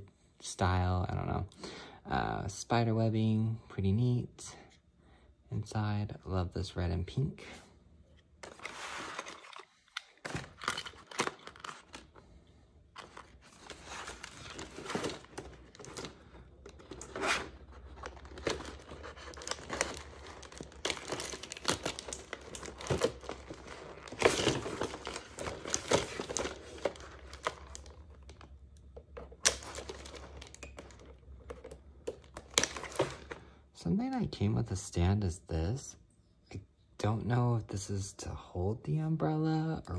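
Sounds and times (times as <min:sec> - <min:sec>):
plastic packaging crinkling: 0:08.4 - 0:12.2, 0:13.0 - 0:33.4.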